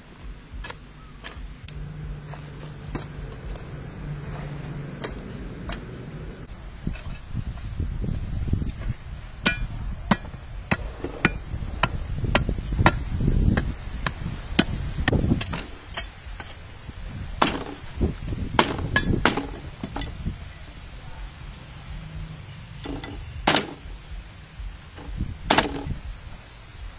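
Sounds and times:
hoe chopping dry soil: 0:00.0 - 0:06.2, 0:06.8 - 0:20.0, 0:24.8 - 0:26.0.

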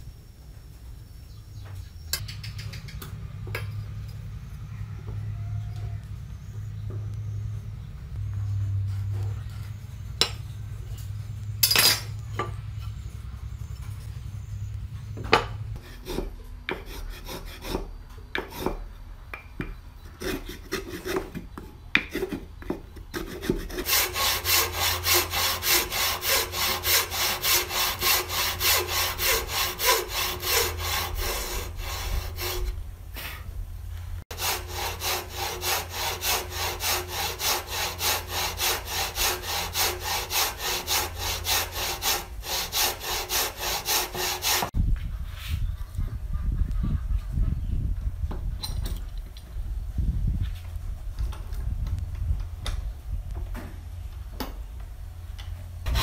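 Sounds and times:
hacksaw cutting wood: 0:15.8 - 0:18.9, 0:20.1 - 0:21.4, 0:22.0 - 0:32.8, 0:34.3 - 0:44.8.

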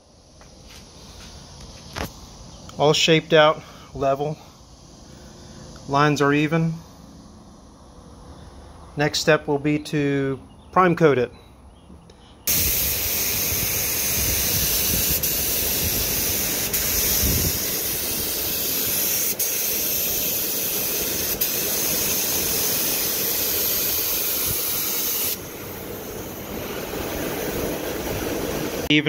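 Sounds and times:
spray gun hissing: 0:12.5 - 0:28.9.

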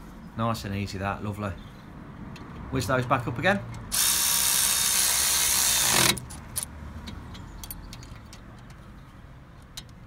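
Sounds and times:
cordless ratchet running: 0:03.9 - 0:06.4.

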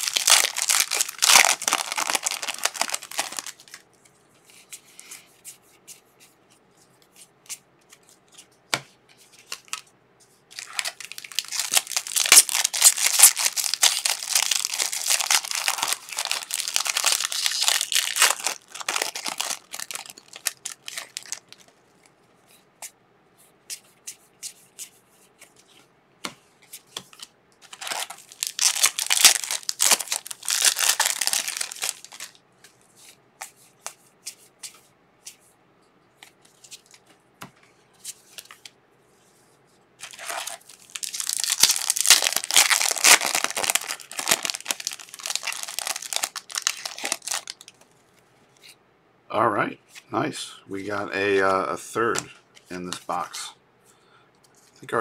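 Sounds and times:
foil wrappers crinkling and tearing: 0:00.0 - 0:03.8, 0:10.5 - 0:21.8, 0:27.2 - 0:32.4, 0:40.0 - 0:47.8.

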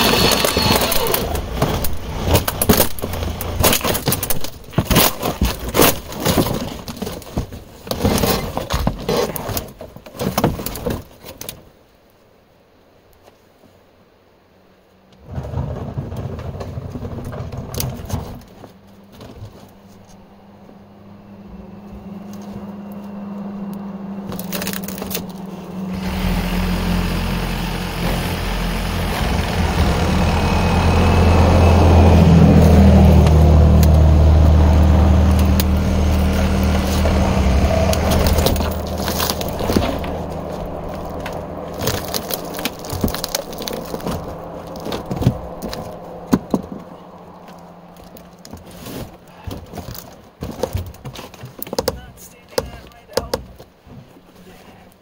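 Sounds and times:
knocks and clatter of pieces: 0:00.0 - 0:11.6, 0:24.3 - 0:25.5, 0:35.4 - 0:46.9
debris cracking and crunching: 0:00.0 - 0:11.7, 0:23.7 - 0:54.9
steady low hum: 0:18.7 - 0:50.4.

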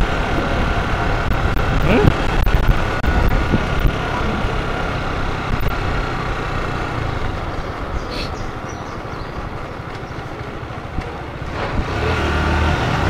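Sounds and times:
wind noise on microphone: 0:00.0 - 0:04.6
motorcycle engine running: 0:00.0 - 0:13.0.

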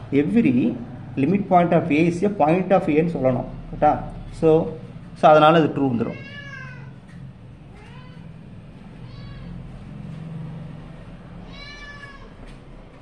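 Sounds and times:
cat meowing: 0:06.0 - 0:09.8, 0:11.4 - 0:12.6.

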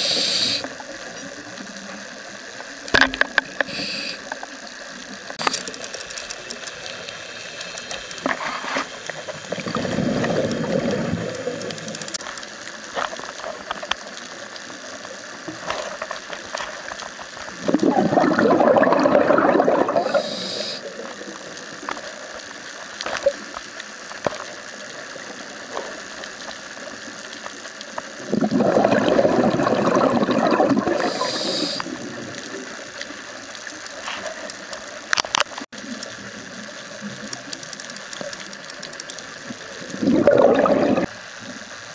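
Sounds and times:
short high hiss: 0:00.0 - 0:00.7, 0:03.6 - 0:04.4, 0:20.0 - 0:20.9, 0:31.0 - 0:31.9
faint crackle of clicks: 0:00.0 - 0:41.9
exhaled bubbles underwater: 0:09.4 - 0:12.2, 0:17.5 - 0:21.6, 0:28.2 - 0:32.8, 0:39.3 - 0:41.2.

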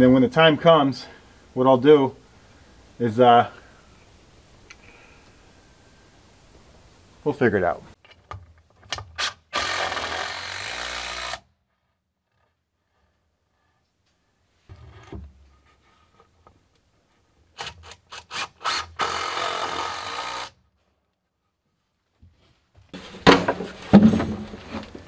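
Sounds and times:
power drill driving screw into wood: 0:08.9 - 0:11.5, 0:17.6 - 0:20.6
plastic bin set down on wood: 0:23.0 - 0:25.0
sharp knocks: 0:23.0 - 0:25.0.

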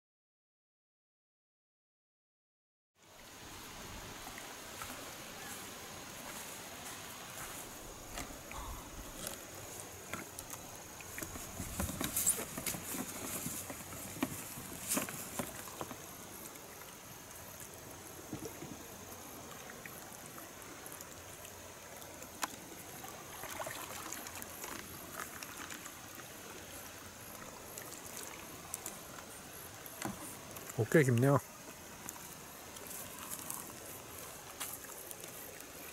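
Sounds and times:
water lapping and dripping: 0:03.4 - 0:35.9
paddle splashes and knocks: 0:10.0 - 0:16.7, 0:18.2 - 0:18.9, 0:22.0 - 0:26.3.

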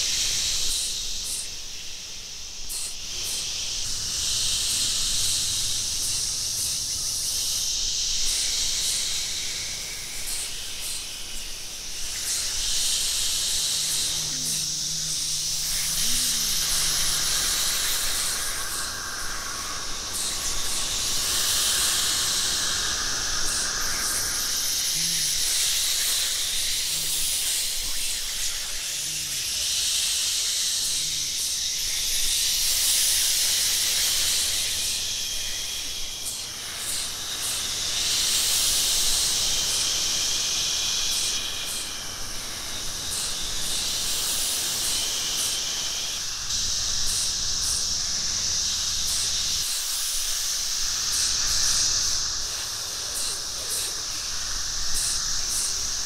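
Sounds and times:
voices imitating insects: 0:00.0 - 0:56.0
low vocal chirps: 0:12.2 - 0:19.2, 0:22.1 - 0:32.0.

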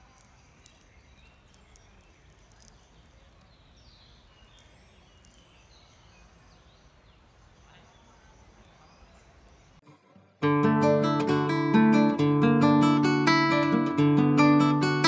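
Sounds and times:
faint bird chirps: 0:00.0 - 0:09.8.

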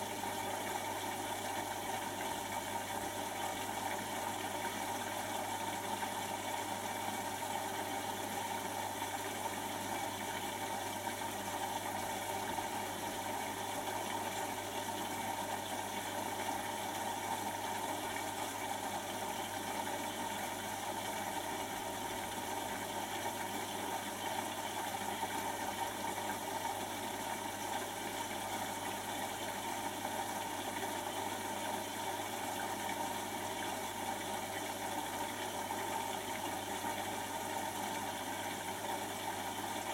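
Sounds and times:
washing machine motor whirr: 0:00.0 - 0:39.9.

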